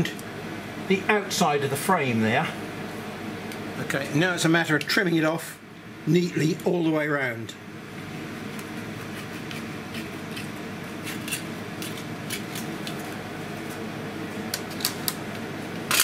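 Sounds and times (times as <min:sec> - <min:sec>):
background hum: 0:00.0 - 0:16.0.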